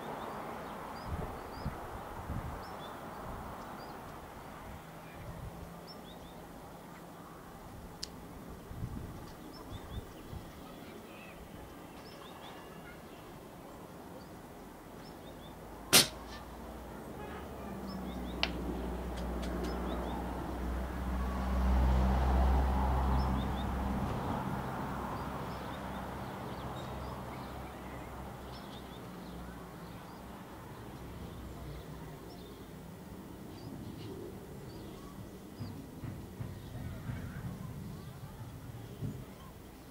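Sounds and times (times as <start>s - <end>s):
air rifle shot: 15.9s - 16.4s.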